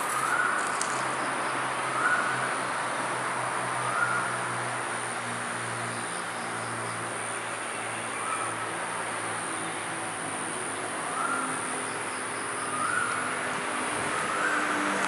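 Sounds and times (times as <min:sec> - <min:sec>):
insects chirring: 0:00.0 - 0:01.7.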